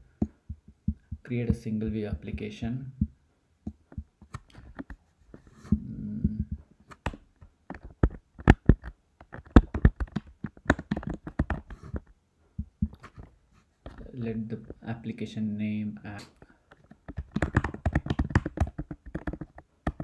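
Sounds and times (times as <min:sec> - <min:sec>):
typing on computer keyboard: 0:06.9 - 0:12.0, 0:17.0 - 0:20.0.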